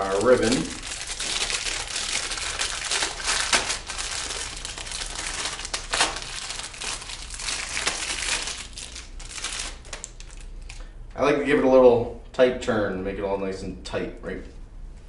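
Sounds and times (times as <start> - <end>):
plastic wrapper crinkling: 0.0 - 10.9.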